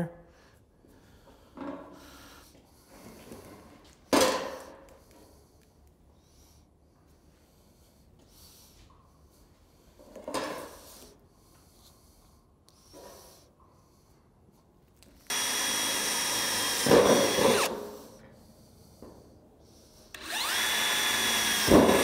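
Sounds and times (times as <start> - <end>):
cordless drill whining: 15.3 - 17.9, 20.1 - 22.0.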